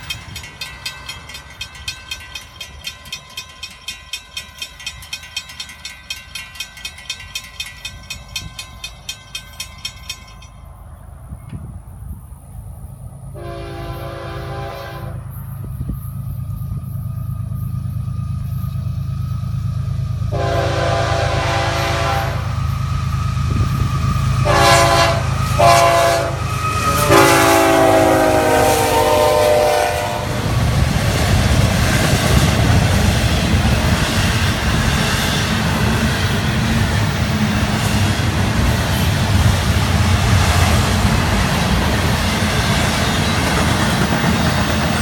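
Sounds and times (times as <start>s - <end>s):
diesel locomotive rumble: 0.0s - 45.0s
freight cars rolling by: 0.0s - 45.0s
locomotive horn blasts: 13.3s - 15.3s, 20.3s - 22.6s, 24.4s - 30.5s.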